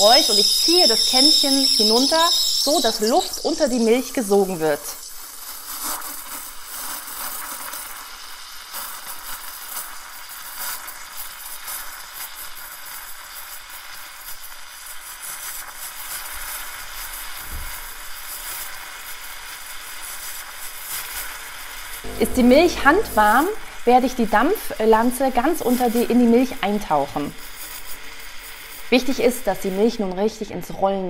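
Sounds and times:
steam wand frothing milk: 0:00.0 - 0:06.7, 0:22.1 - 0:30.0.

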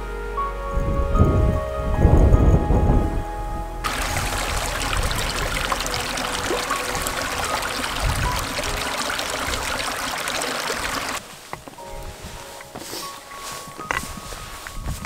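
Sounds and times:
stream trickling over rocks: 0:03.8 - 0:11.3.

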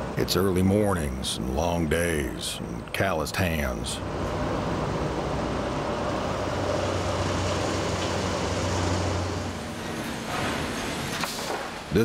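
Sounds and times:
forklift engine running: 0:03.8 - 0:11.2.

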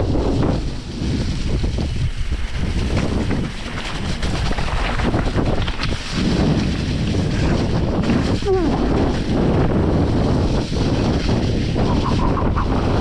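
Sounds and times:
bike rattles and knocks: 0:00.0 - 0:13.0
wind buffeting microphone: 0:00.0 - 0:13.0.

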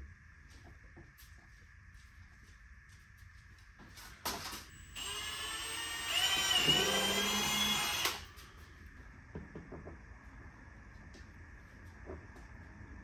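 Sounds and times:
cordless drill whining: 0:04.7 - 0:08.4.

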